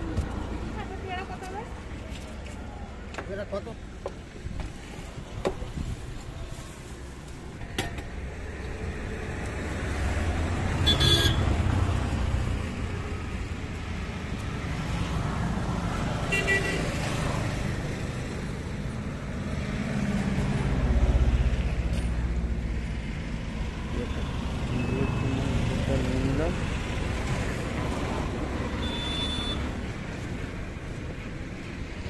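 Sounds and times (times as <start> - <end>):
road traffic rumble: 0.0 - 32.0
vehicle horn tooting: 10.8 - 11.5, 16.3 - 16.8, 28.8 - 29.7.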